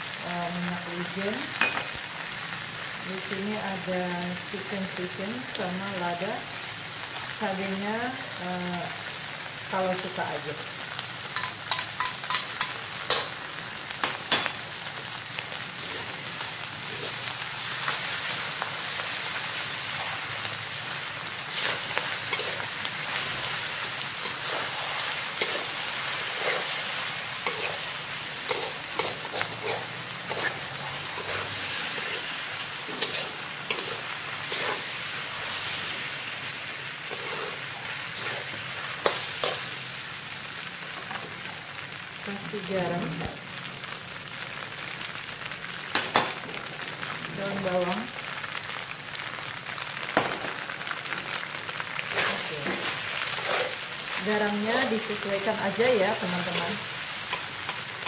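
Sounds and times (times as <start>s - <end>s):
food sizzling in a wok: 0.0s - 58.0s
metal spatula scraping a pan: 21.5s - 23.6s, 24.2s - 35.7s, 37.0s - 39.7s, 52.1s - 53.8s.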